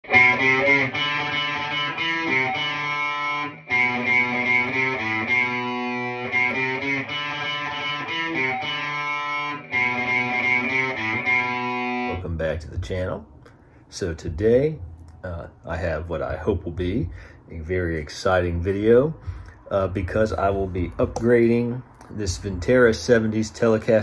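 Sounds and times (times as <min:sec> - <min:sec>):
electric guitar strumming chords: 0:00.0 - 0:13.0.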